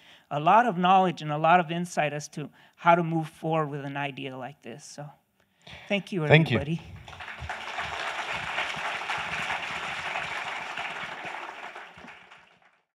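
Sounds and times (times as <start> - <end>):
audience applauding: 6.3 - 12.9.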